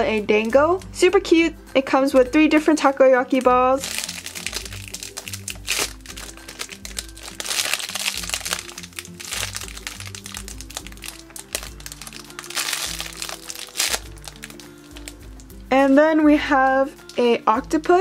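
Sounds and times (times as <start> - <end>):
background music: 0.0 - 18.0
plastic packaging crinkling: 3.3 - 15.7.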